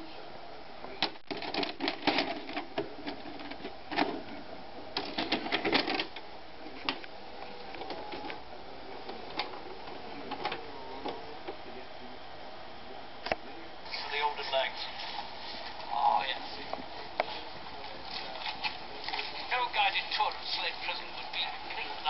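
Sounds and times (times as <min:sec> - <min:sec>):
cassette loading clicks and clatters: 0:01.0 - 0:04.4, 0:05.0 - 0:07.1, 0:09.0 - 0:11.2.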